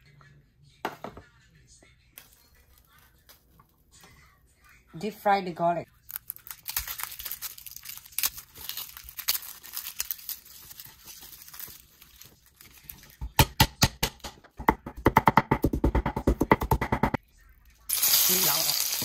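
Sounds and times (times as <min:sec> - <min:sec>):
garlic sizzling in hot oil: 0:17.9 - 0:19.0.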